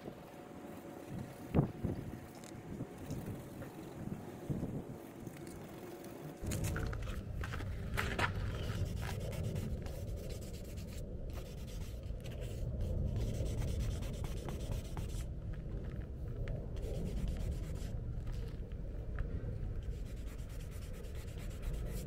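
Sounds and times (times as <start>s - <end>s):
sandpaper scraping: 8.4s - 15.3s, 19.9s - 22.0s.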